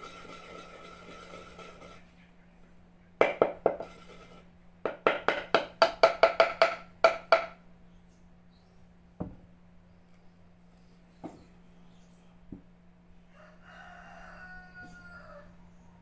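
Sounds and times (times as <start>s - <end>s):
wooden pestle pounding in mortar: 3.2s - 4.0s, 4.8s - 7.6s.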